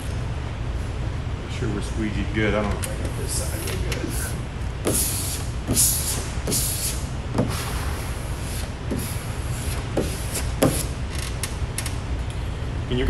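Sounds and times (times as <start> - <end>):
steady low rumble: 0.0 - 13.0
squeegee scraping vinyl: 3.1 - 11.4.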